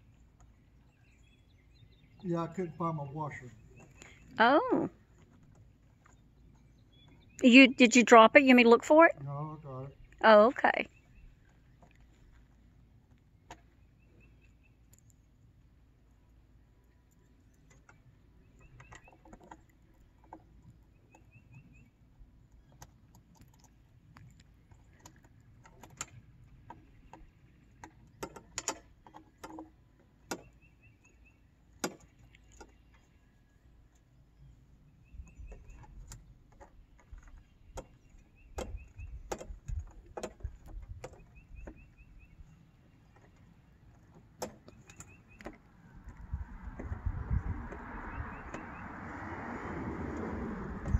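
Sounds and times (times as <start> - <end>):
wind rumble on microphone: 35.0 - 42.6, 45.7 - 50.9.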